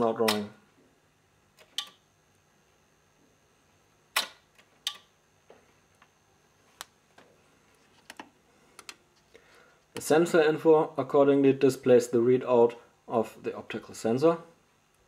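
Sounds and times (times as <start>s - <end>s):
turntable motor switch clicks: 0.2s - 0.5s.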